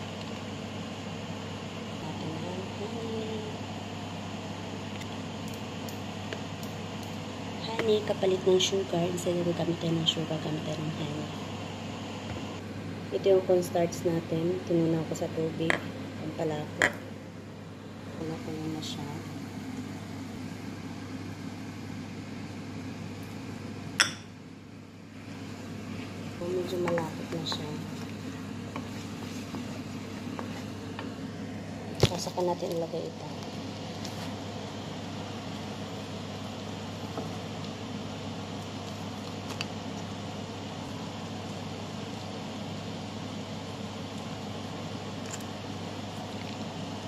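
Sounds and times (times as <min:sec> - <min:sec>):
range hood fan humming: 0:00.0 - 0:47.0.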